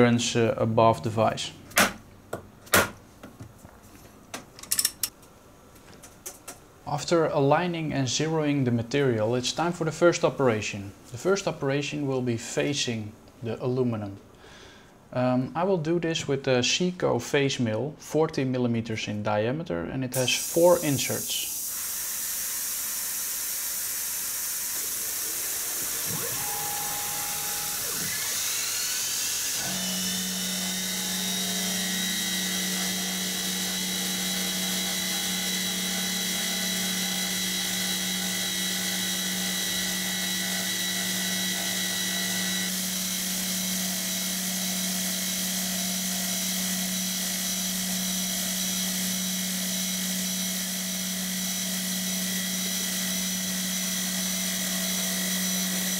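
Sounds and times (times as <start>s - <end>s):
coolant nozzle hissing: 20.2s - 29.6s
milling spindle whine: 24.4s - 55.9s.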